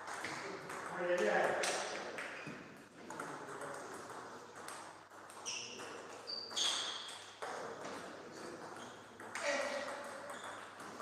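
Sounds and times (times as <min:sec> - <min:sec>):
short high squeaks: 0:05.5 - 0:07.1.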